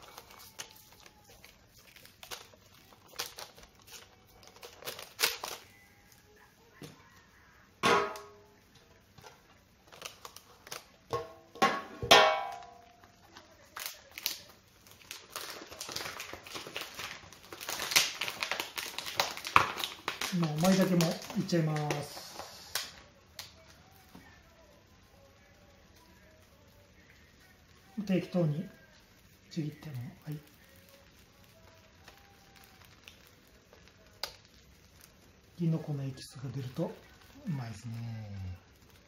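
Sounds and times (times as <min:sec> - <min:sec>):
faint hiss: 0:12.6 - 0:39.0.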